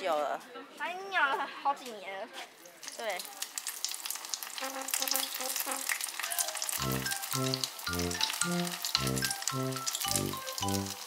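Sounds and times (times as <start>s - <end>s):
oil crackling and sizzling: 2.5s - 11.0s
background music: 6.8s - 11.0s.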